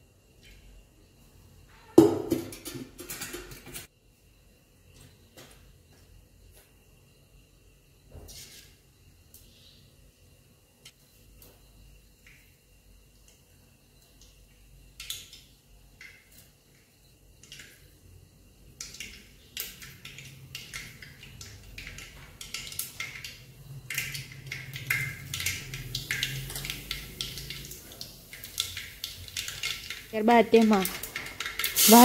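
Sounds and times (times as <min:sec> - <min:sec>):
seeds popping in hot oil: 0:11.4 - 0:32.0.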